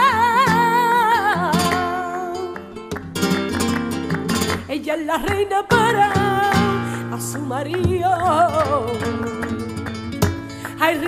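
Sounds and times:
singer with wide vibrato: 0:00.0 - 0:02.7, 0:04.6 - 0:09.7, 0:10.6 - 0:11.0
strummed and plucked guitar: 0:00.0 - 0:11.0.

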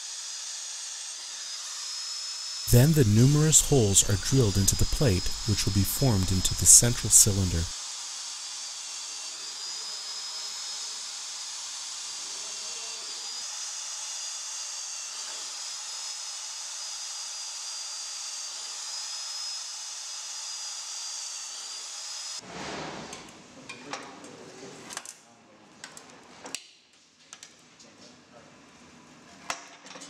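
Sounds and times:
electric drill cutting steel: 0:00.0 - 0:22.4.

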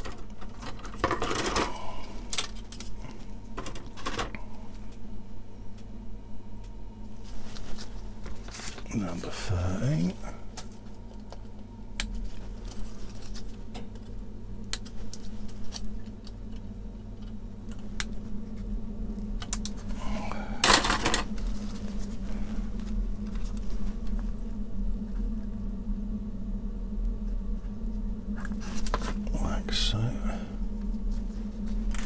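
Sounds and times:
steady low hum: 0:00.0 - 0:32.0
rustling scrape: 0:07.2 - 0:08.8.

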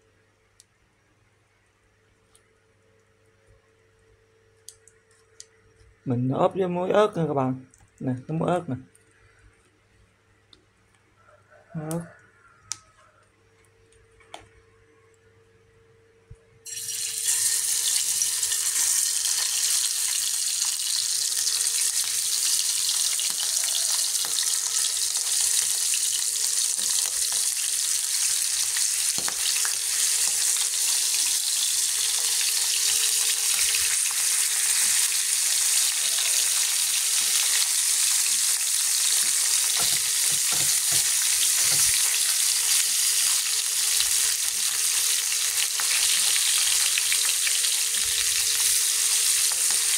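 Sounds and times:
fish sizzling in hot oil: 0:16.6 - 0:49.9.

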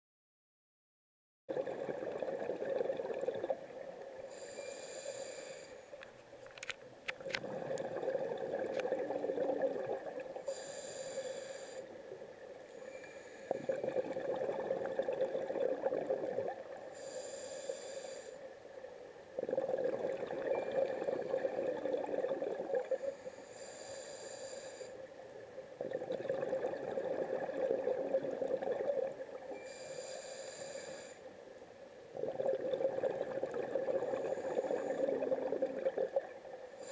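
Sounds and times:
exhaled bubbles rushing: 0:01.5 - 0:03.8, 0:07.2 - 0:10.4, 0:13.5 - 0:16.8, 0:19.4 - 0:22.9, 0:25.8 - 0:29.4, 0:32.2 - 0:36.5
regulator hissing inhale: 0:04.3 - 0:06.0, 0:10.4 - 0:12.0, 0:12.7 - 0:13.8, 0:16.9 - 0:18.5, 0:22.9 - 0:25.1, 0:29.5 - 0:31.3, 0:34.0 - 0:35.2.

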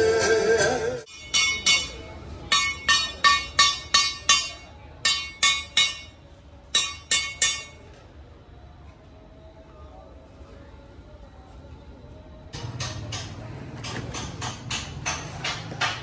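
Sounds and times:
hammer clanging on sheet metal: 0:01.1 - 0:06.2, 0:06.8 - 0:07.9, 0:12.6 - 0:16.0.

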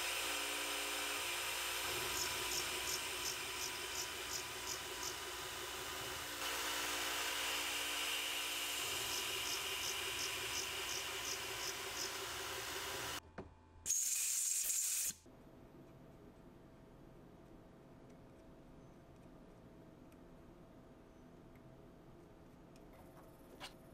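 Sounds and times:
milling machine spindle running: 0:00.0 - 0:13.2.

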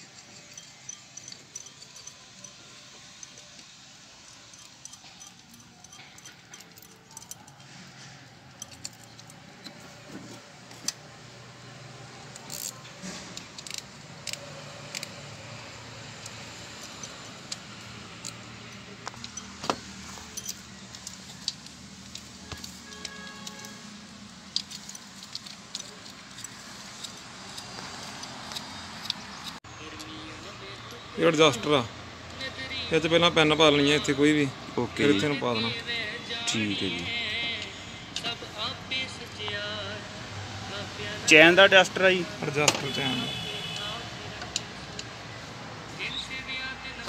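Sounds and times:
metal chain links clinking: 0:00.0 - 0:10.5, 0:12.3 - 0:29.6.

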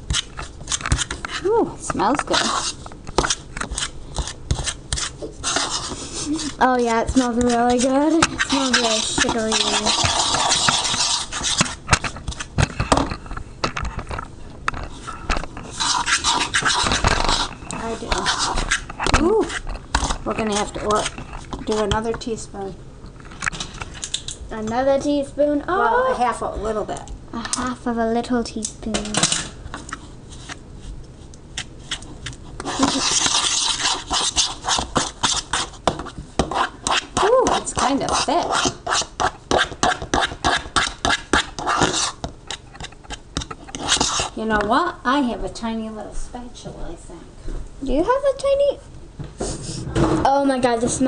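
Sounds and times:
fork scraping plastic bowl: 0:00.0 - 0:12.8, 0:14.8 - 0:22.1, 0:31.6 - 0:44.7.

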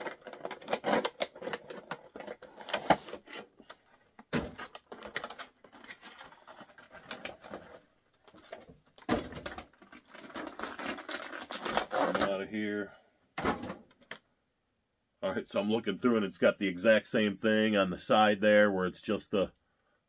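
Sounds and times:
packaging crinkling and clicking: 0:00.0 - 0:12.3.

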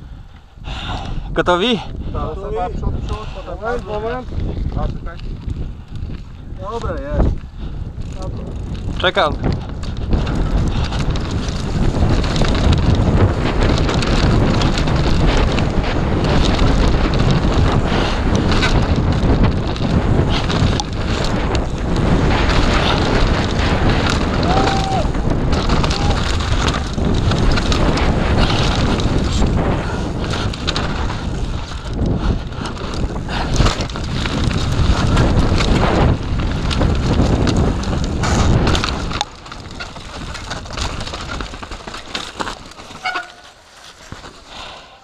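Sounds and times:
wind buffeting microphone: 0:00.0 - 0:45.0
bike rattling on rough ground: 0:01.4 - 0:45.0
scuffs and handling sounds: 0:42.1 - 0:44.5.

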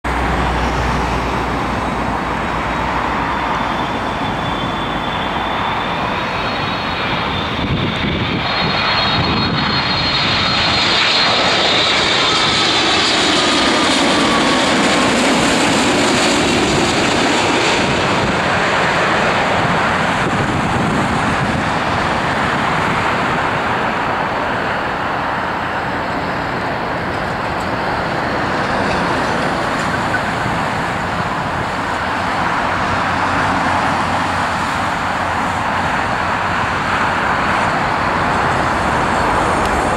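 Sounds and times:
airliner rumble on runway: 0:00.0 - 0:39.9
jet roar with high whine: 0:00.0 - 0:39.9.

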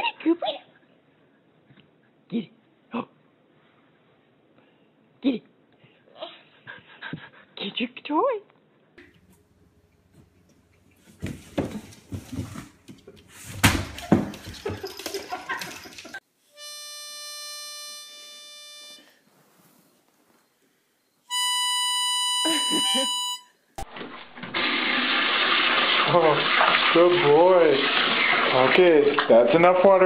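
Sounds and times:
long steady musical notes: 0:16.5 - 0:19.0, 0:21.3 - 0:23.5.

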